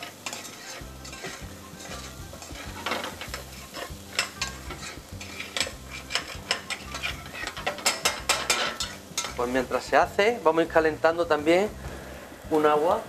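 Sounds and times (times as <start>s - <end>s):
spoon scraping and clinking pan: 0.0s - 9.5s
food sizzling in a pan: 0.0s - 13.0s.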